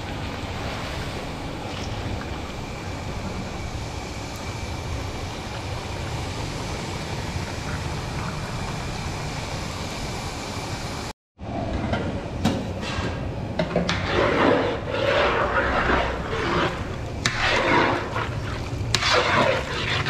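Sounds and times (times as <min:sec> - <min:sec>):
gas flame rushing: 0:12.6 - 0:20.0
meat sizzling in wok: 0:14.2 - 0:20.0
water pouring: 0:14.9 - 0:20.0.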